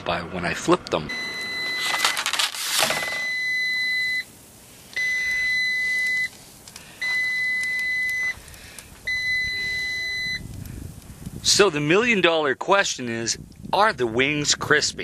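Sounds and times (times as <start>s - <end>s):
high-pitched alert beeps: 9.1s - 10.4s.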